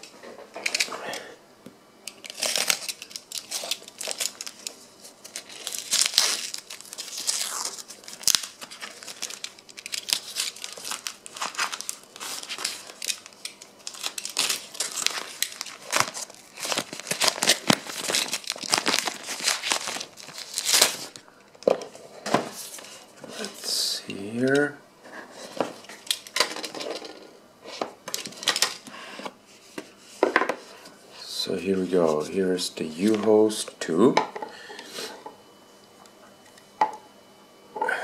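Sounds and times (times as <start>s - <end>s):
paper crinkling and tearing: 2.2s - 21.2s.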